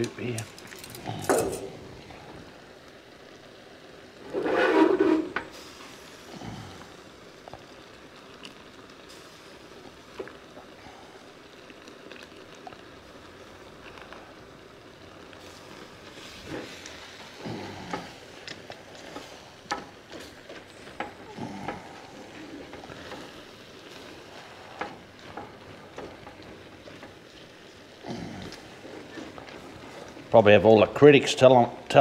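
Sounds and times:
food sizzling in a pan: 0.0s - 32.0s
utensil scraping a pan: 4.2s - 5.5s.

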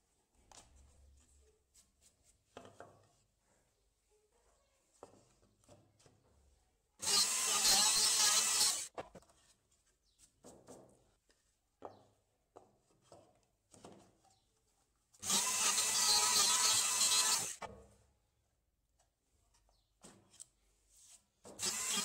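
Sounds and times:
router cutting wood: 7.0s - 8.9s, 15.2s - 17.7s, 21.6s - 22.0s.

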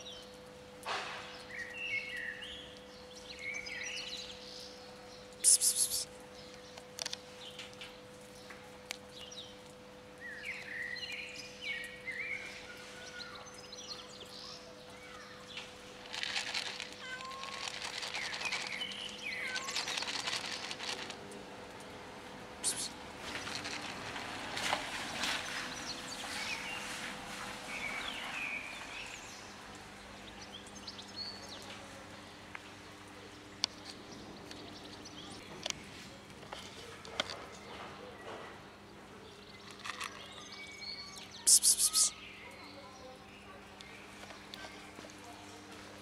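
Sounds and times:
high chirping calls: 5.4s - 6.1s, 22.6s - 23.0s, 41.4s - 42.3s
sharp crackle: 16.0s - 21.2s.

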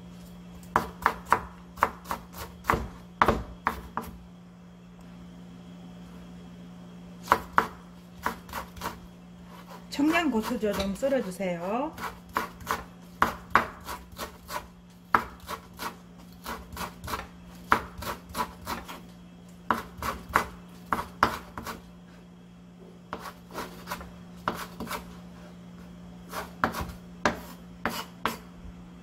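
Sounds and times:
steady low hum: 0.0s - 29.0s
knife chopping on wooden board: 0.7s - 4.2s, 7.2s - 9.8s, 10.4s - 11.2s, 12.0s - 19.0s, 19.7s - 21.8s, 23.1s - 25.0s, 26.3s - 28.4s.

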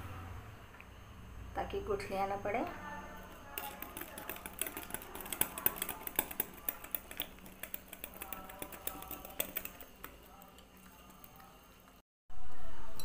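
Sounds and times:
whisk clicking against glass bowl: 3.2s - 12.0s.

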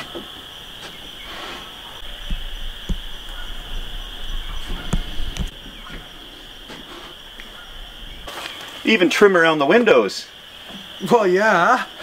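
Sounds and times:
heavier thuds: 0.0s - 6.9s
footsteps on dry leaves: 8.2s - 9.0s.

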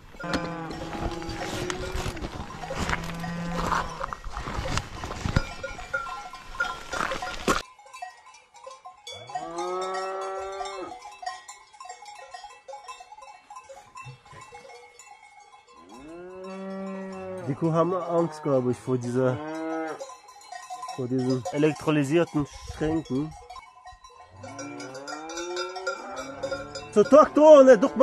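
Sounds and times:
faint cowbells: 0.0s - 28.0s
cows mooing: 0.1s - 4.8s, 9.1s - 11.0s, 15.8s - 20.0s, 24.3s - 28.0s.

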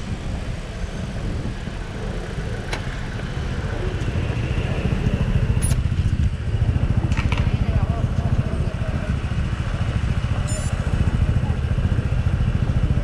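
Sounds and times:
road and wind rumble: 0.0s - 13.0s
motor scooter engine running: 0.1s - 13.0s.

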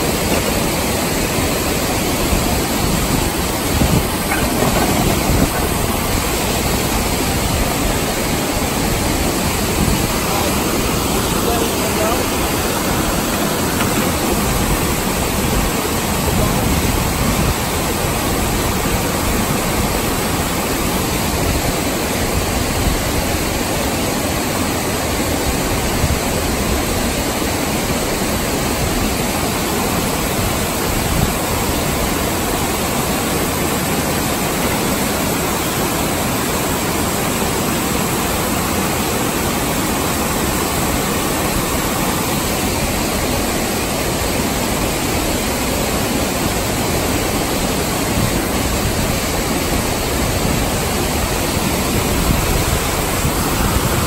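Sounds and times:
waterfall rushing over rocks: 0.0s - 54.0s.

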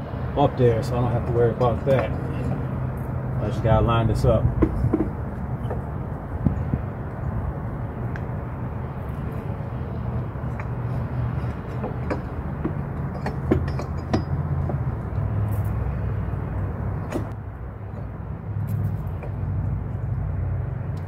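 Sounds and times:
metal clicks and clinks: 13.0s - 14.4s.

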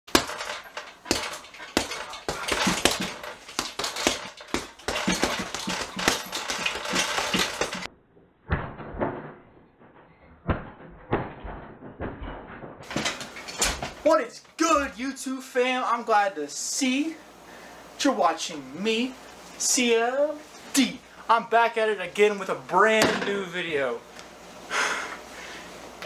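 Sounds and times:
knocks bangs and clattering: 0.1s - 7.9s.

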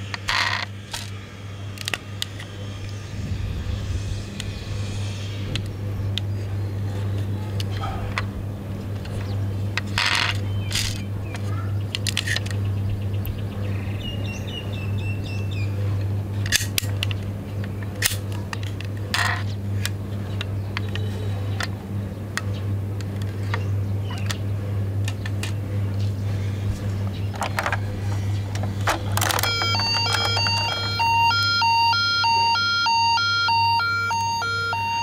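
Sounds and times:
steady low hum: 0.0s - 35.0s
toy clicking and clacking: 28.5s - 35.0s
small toy doors snapping: 28.6s - 31.7s
faint wavering high tone: 29.3s - 35.0s.

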